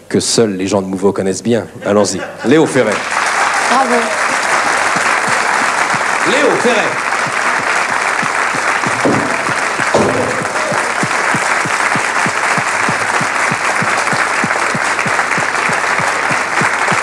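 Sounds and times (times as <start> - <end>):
audience applauding and cheering: 2.8 - 17.0
steady thumping beat: 4.9 - 17.0.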